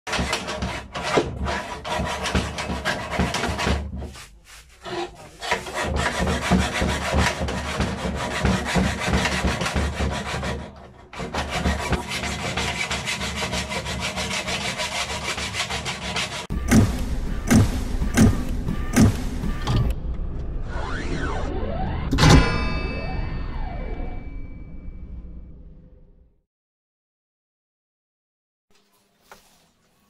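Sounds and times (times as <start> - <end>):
file rasping on steel blade: 0.1 - 3.8, 4.8 - 16.8.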